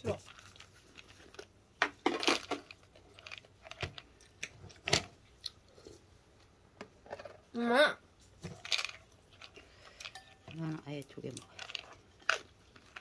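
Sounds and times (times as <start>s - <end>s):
person chewing food: 0.2s - 1.6s, 2.5s - 6.1s, 8.5s - 10.6s, 11.3s - 13.0s
utensils clicking on bowl: 8.6s - 13.0s.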